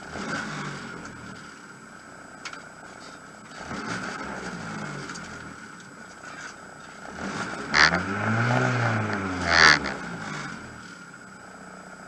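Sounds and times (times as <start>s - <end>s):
car engine revving: 0.0s - 1.6s, 3.4s - 11.3s.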